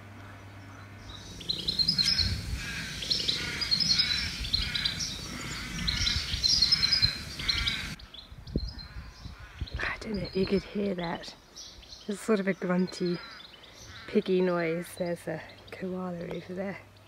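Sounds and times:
birds calling: 0:00.0 - 0:17.0
koala bellowing: 0:01.0 - 0:08.0.

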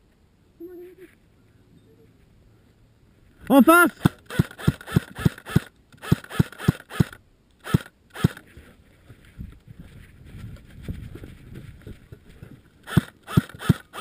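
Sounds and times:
airsoft rifle shots: 0:03.5 - 0:08.4, 0:12.8 - 0:14.0.

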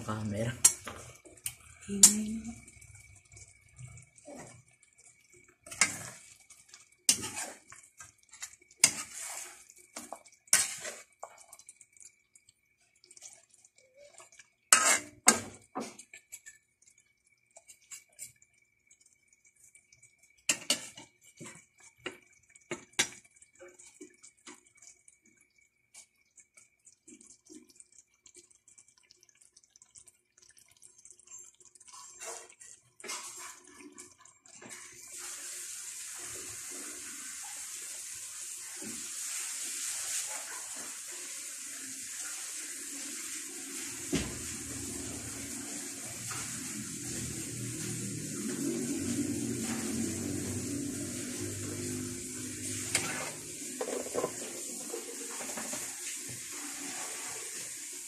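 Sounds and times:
sauce sloshing and bubbling: 0:00.4 - 0:01.9, 0:02.5 - 0:58.0
metal utensil scraping a wok: 0:05.6 - 0:06.4, 0:07.1 - 0:07.8, 0:08.4 - 0:11.2, 0:14.7 - 0:15.5, 0:51.0 - 0:55.9.

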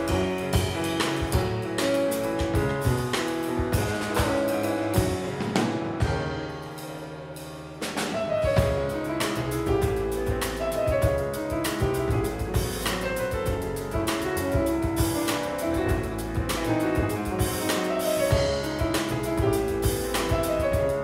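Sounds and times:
double bass: 0:00.0 - 0:21.0
drum kit with cymbals: 0:00.0 - 0:21.0
piano: 0:00.0 - 0:21.0.

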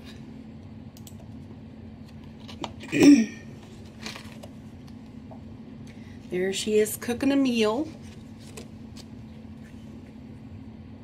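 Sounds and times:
steady low hum: 0:00.0 - 0:11.0
faint paper rustles: 0:03.6 - 0:04.6, 0:07.8 - 0:10.1.

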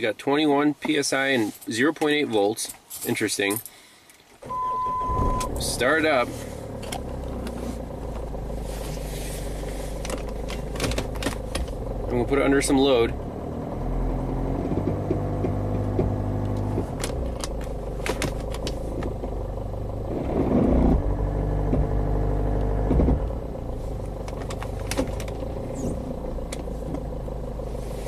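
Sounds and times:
clattery diesel engine running: 0:04.4 - 0:28.0
engine knocks: 0:05.0 - 0:13.8, 0:14.5 - 0:27.4.

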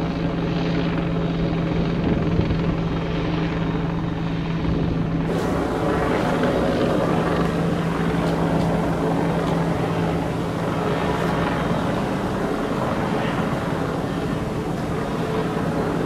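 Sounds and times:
helicopter flying overhead: 0:00.0 - 0:16.0.

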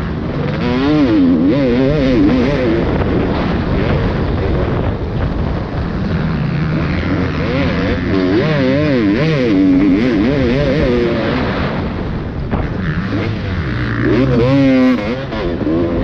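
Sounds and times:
motocross bike engine revving: 0:00.0 - 0:16.0
steady rush of noise: 0:00.0 - 0:16.0.

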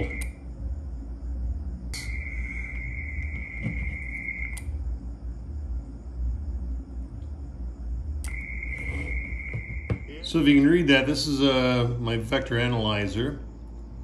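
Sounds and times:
steady low hum: 0:00.0 - 0:14.0
high-pitched electronic tone: 0:02.0 - 0:04.6, 0:08.3 - 0:10.0.

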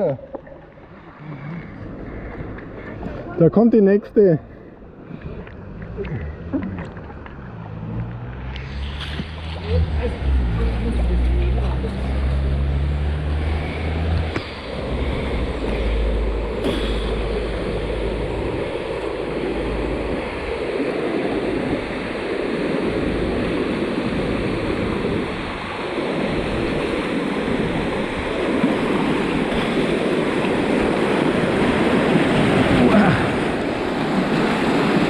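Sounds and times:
wind on microphone: 0:05.1 - 0:35.0
whitewater rushing: 0:05.2 - 0:35.0.

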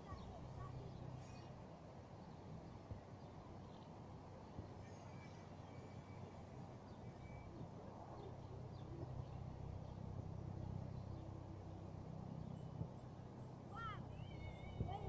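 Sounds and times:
low steady rumble: 0:00.0 - 0:15.0
faint high bird chirps: 0:04.5 - 0:10.0, 0:12.4 - 0:15.0.

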